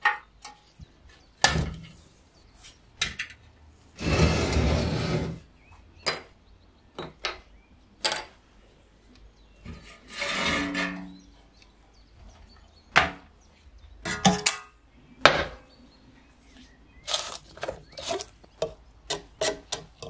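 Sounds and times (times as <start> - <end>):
metal scraping on wood: 4.0 - 5.5, 9.6 - 11.4, 17.1 - 20.0.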